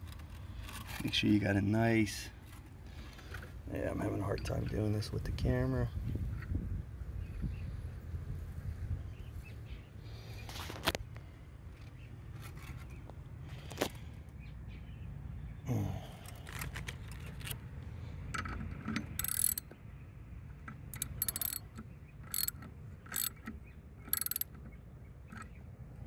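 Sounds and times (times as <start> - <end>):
socket ratchet clicking: 18.4 - 19.7, 20.7 - 24.6.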